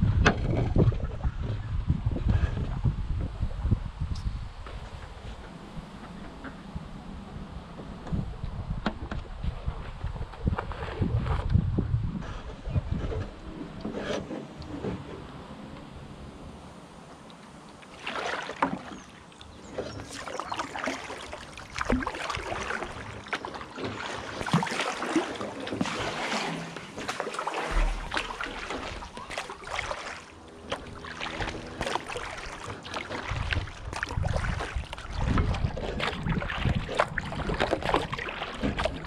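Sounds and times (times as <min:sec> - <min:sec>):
wind on microphone: 0:00.0 - 0:15.1, 0:27.6 - 0:39.0
paddle strokes splashing water: 0:17.3 - 0:39.0
water slapping against hull: 0:17.7 - 0:39.0.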